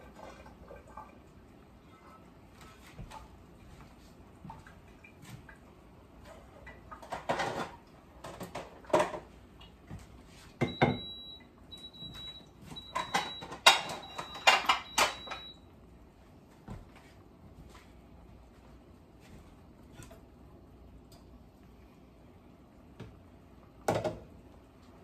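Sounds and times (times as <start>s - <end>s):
kitchenware clattering and knocking: 6.9s - 9.3s, 12.8s - 15.5s, 23.9s - 24.3s.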